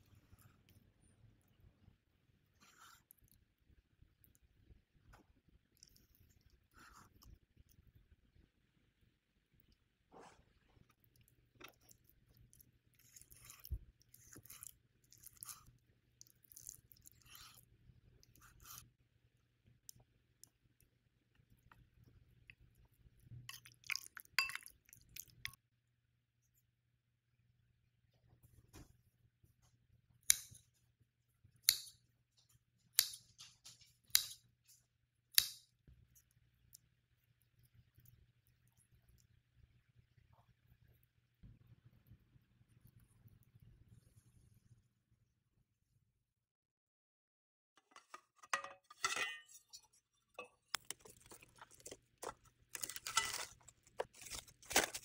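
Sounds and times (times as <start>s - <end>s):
food scraping and rustling: 47.8s - 55.0s
utensils clinking on dishes: 48.0s - 49.8s.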